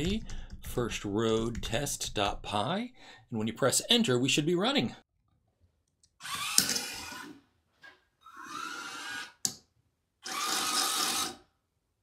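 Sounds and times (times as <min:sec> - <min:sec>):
small gear motors whirring: 0:06.2 - 0:07.4, 0:08.2 - 0:09.4, 0:10.2 - 0:11.4.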